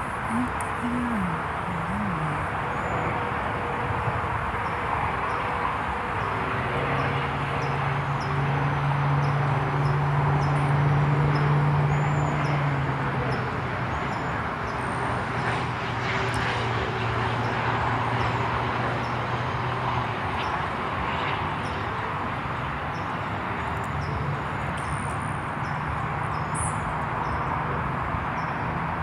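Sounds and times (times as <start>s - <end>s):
low engine drone: 0.0s - 4.3s
road traffic noise: 0.0s - 29.0s.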